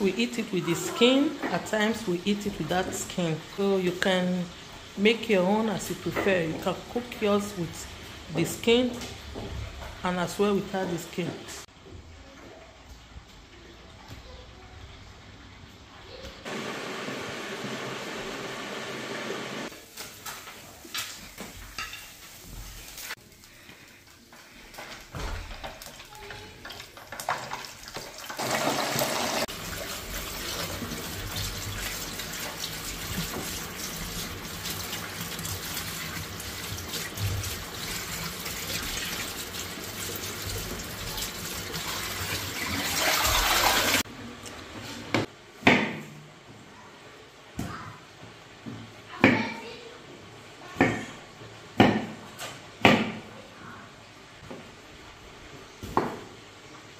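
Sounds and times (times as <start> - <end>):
tap water running: 25.4 - 44.1.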